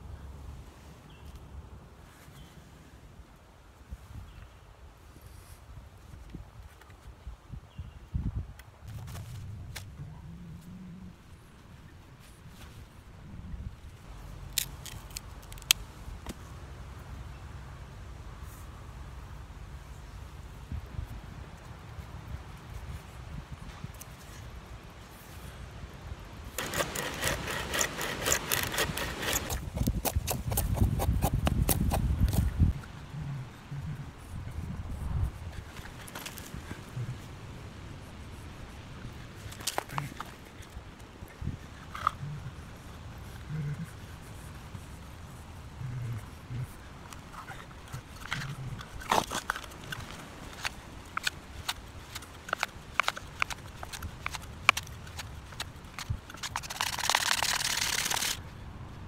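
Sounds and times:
knife shaving a stick: 14.3 - 15.8, 26.5 - 32.9, 42.8 - 58.4
bow saw rasping through wood: 26.6 - 32.4.

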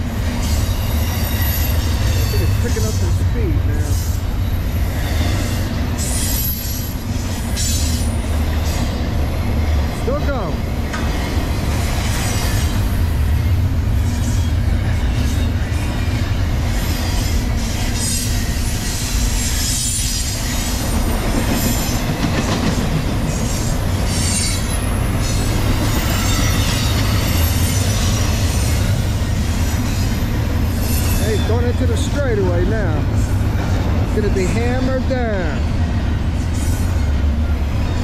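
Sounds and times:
freight train rumbling: 0.0 - 38.0
high-pitched wheel squeal: 0.4 - 3.0, 23.5 - 31.8.

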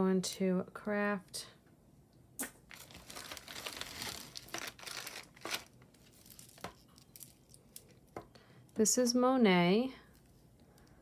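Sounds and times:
plastic bag crinkling: 2.7 - 7.9.

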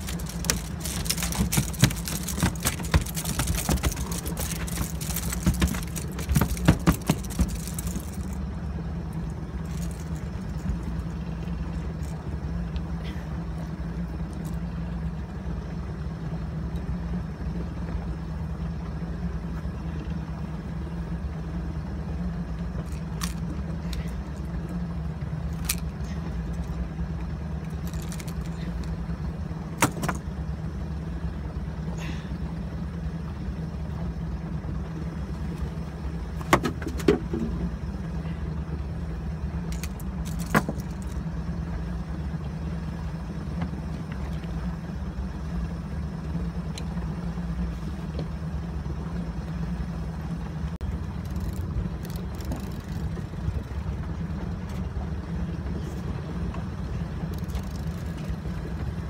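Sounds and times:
boat engine humming: 0.0 - 59.0.

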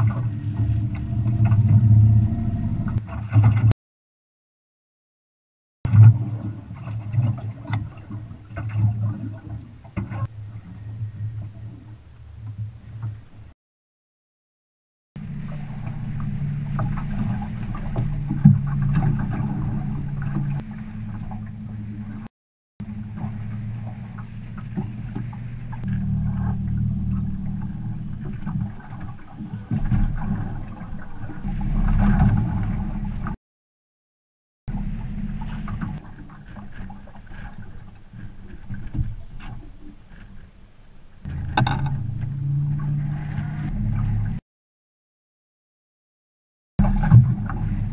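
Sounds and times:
low rumble: 0.0 - 3.7, 15.2 - 33.4, 34.7 - 40.4, 41.2 - 44.4, 46.8 - 47.9
water slapping against boat hull: 2.9 - 3.7, 15.4 - 21.8, 23.0 - 33.4, 46.8 - 47.9
small knocks: 41.6 - 42.0.

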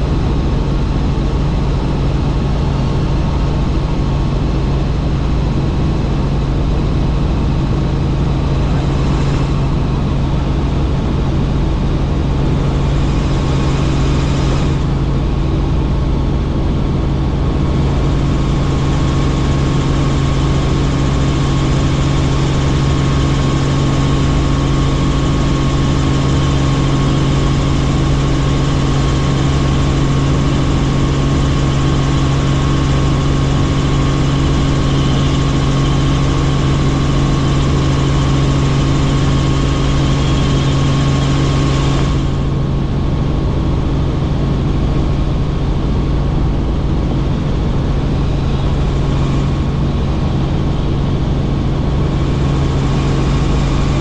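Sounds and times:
helicopter rotor and turbine drone: 0.0 - 54.0.

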